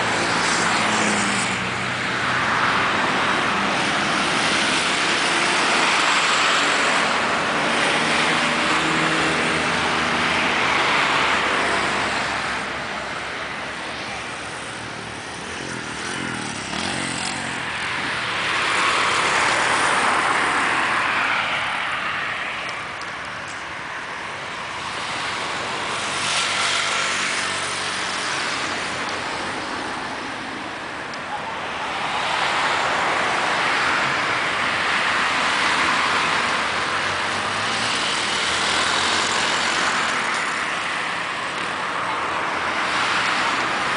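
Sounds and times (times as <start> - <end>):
cars and trucks driving past: 0.0 - 43.9.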